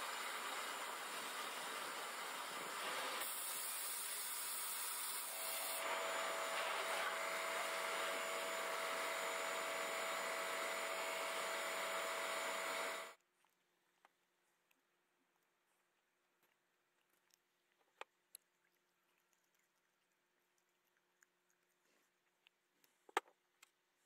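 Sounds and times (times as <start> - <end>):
abrasive blasting hiss: 0.0 - 5.9.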